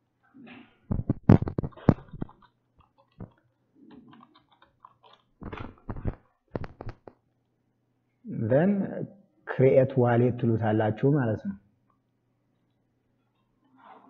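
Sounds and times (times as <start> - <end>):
keyboard typing: 0.9 - 7.2.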